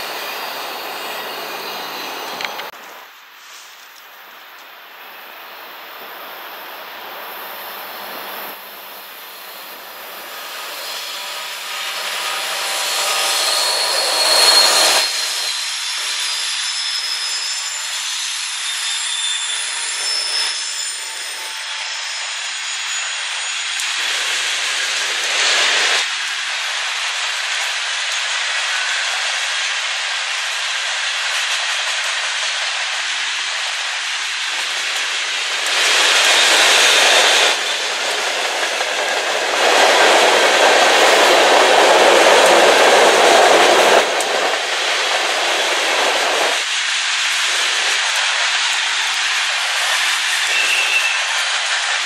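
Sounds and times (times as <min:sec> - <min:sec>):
high wheel squeals: 0:00.0 - 0:02.7, 0:09.0 - 0:23.8, 0:49.8 - 0:51.6
rail clicks: 0:00.0 - 0:02.8, 0:27.5 - 0:52.0
diesel locomotives passing: 0:00.0 - 0:03.5, 0:04.1 - 0:52.0
train wheels on rails: 0:00.0 - 0:52.0.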